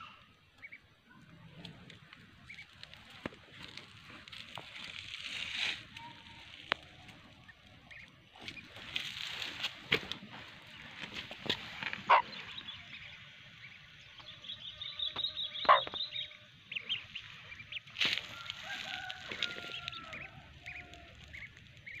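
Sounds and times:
ducklings peeping: 0.0 - 0.9, 2.3 - 3.1, 6.0 - 9.3, 11.9 - 22.0
hen clucking: 11.8 - 22.0.

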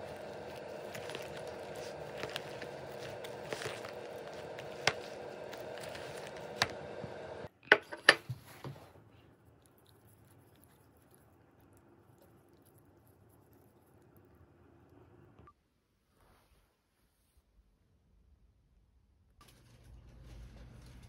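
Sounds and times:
chopsticks rustling food: 0.0 - 7.5, 8.3 - 14.6.

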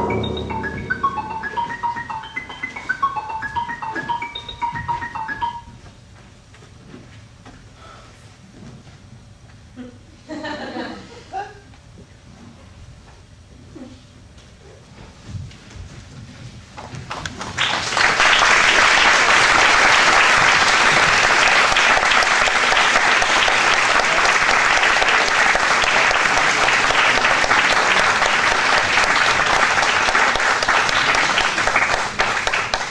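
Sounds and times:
audience applauding: 17.4 - 32.9.

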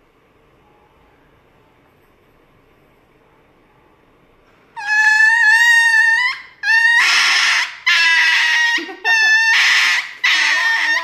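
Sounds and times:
dog wailing high-pitched: 4.8 - 11.0.

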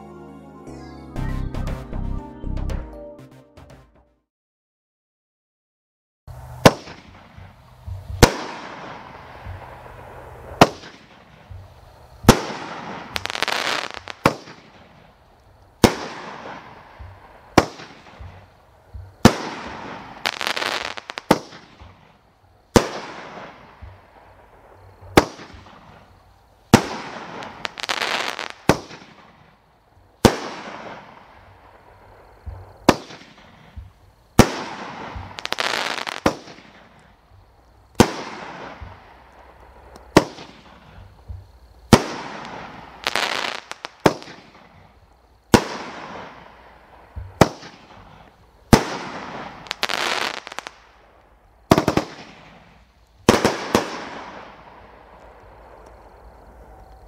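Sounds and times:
firework crackling: 6.3 - 57.0
firework shots banging: 6.6 - 15.0, 15.8 - 22.1, 25.0 - 26.1, 26.7 - 29.5, 32.4 - 37.0, 38.0 - 44.8, 45.5 - 50.8, 51.7 - 54.7.

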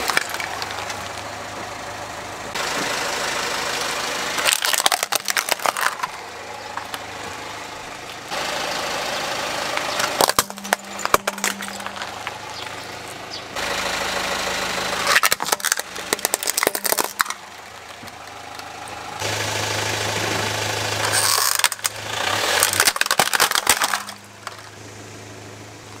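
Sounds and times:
toy cracking under car wheel: 0.0 - 1.2, 4.4 - 7.0, 10.0 - 12.8, 15.1 - 18.7, 21.0 - 24.8
car engine idling: 0.0 - 26.0.

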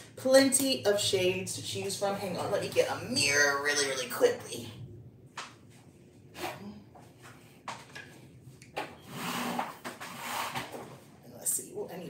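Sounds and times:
rustling and scraping: 5.6 - 11.2.

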